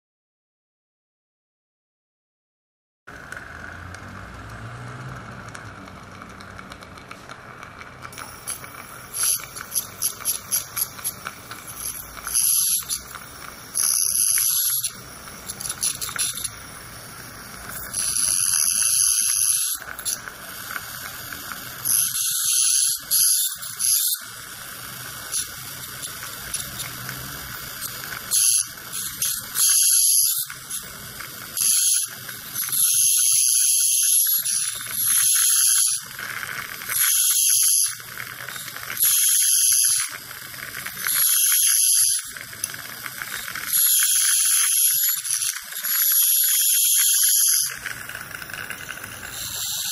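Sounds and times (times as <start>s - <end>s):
steady hum: 3.1s - 29.8s
ultrasonic dental handpiece hissing: 8.1s - 49.9s.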